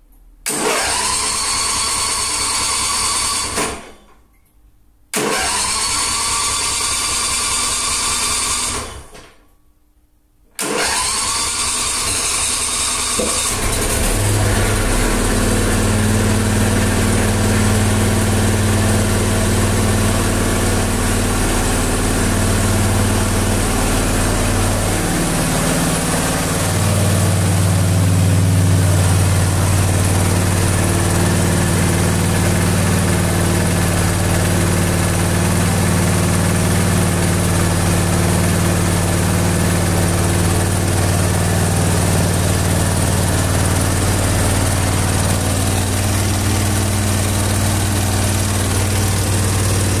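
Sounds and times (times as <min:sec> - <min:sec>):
riding mower engine running: 0:10.6 - 0:50.0.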